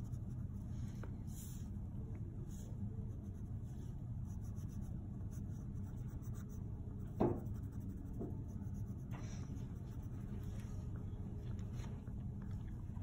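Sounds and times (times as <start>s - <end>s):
steady low hum: 0.0s - 13.0s
pencil scratching on paper: 3.1s - 10.4s.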